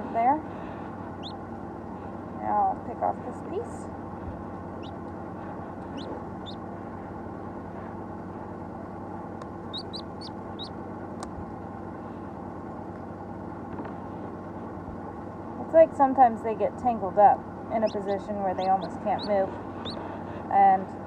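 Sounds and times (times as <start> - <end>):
steady low hum: 0.0 - 21.0
chick peeping: 5.8 - 6.6, 9.7 - 10.7, 17.8 - 20.0.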